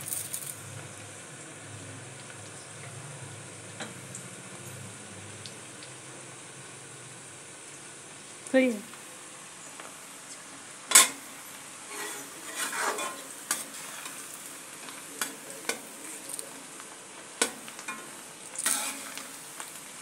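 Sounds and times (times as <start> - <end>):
cabbage sizzling: 0.0 - 20.0
spatula scraping and knocking pan: 11.9 - 15.9, 17.4 - 19.3.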